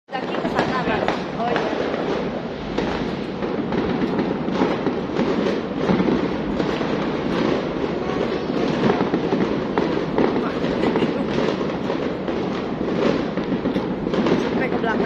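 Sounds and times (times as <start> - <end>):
fireworks popping and banging: 0.1 - 15.0.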